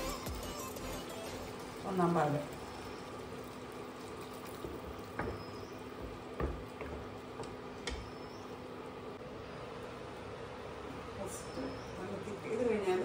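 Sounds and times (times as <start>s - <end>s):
vegetables simmering: 0.8s - 11.2s.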